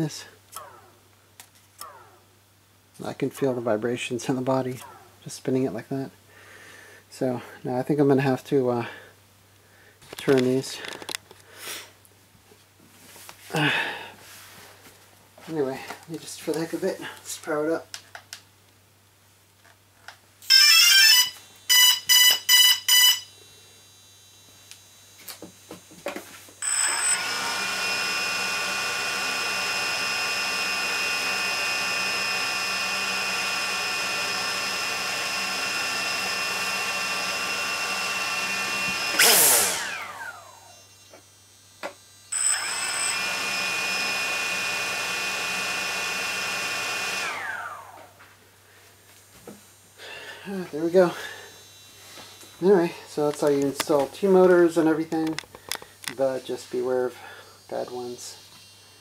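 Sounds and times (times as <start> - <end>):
drone motors whining: 0.5 - 1.0, 1.8 - 2.3, 4.8 - 5.2, 20.4 - 48.2, 49.7 - 59.0
electronic start-up beeps: 20.5 - 23.3.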